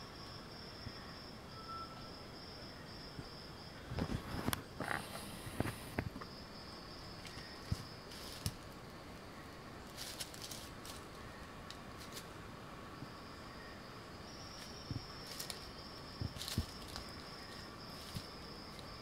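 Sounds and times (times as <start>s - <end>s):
high insect tone: 0.0s - 19.0s
leaves rustling underfoot: 7.1s - 12.5s, 14.3s - 19.0s.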